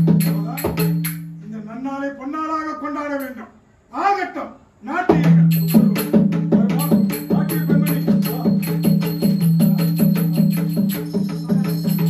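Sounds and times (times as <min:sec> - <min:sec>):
bright metallic jingle: 0:00.0 - 0:01.8, 0:05.4 - 0:12.0
hand drum fast rhythm: 0:05.1 - 0:12.0.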